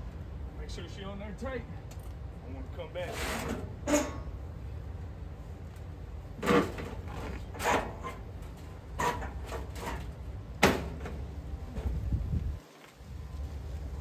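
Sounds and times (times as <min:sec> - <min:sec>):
steady low rumble: 0:00.0 - 0:14.0
knocks and clunks of handling parts: 0:06.4 - 0:12.1.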